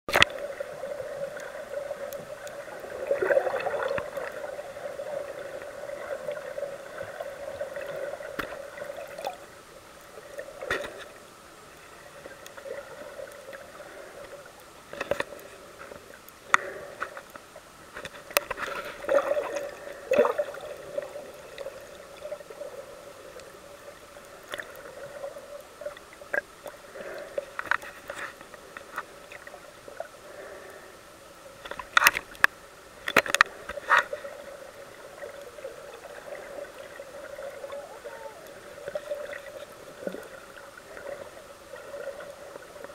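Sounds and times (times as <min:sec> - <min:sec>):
muffled underwater hum: 0:00.1 - 0:42.9
sharp underwater clicks: 0:31.6 - 0:34.2.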